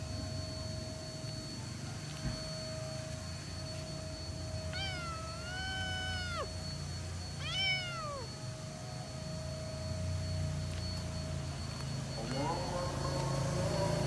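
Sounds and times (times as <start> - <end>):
cat meowing: 4.7 - 6.6, 7.4 - 8.3.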